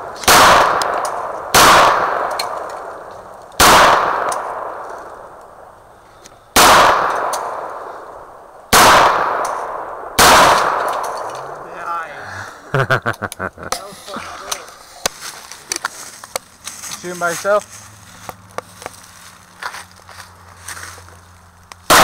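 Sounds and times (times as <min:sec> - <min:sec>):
handgun shots with echo: 0:00.2 - 0:02.9, 0:03.6 - 0:04.9, 0:06.6 - 0:07.8, 0:08.7 - 0:11.6.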